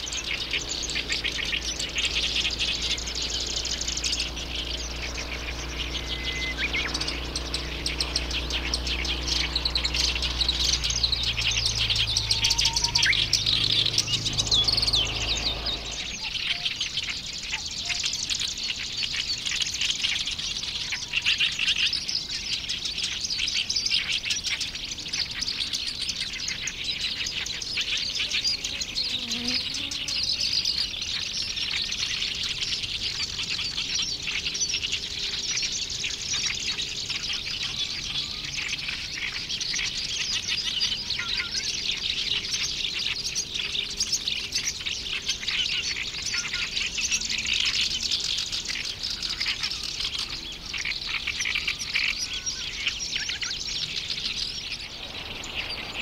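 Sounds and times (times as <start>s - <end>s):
warbler singing: 0.0s - 56.0s.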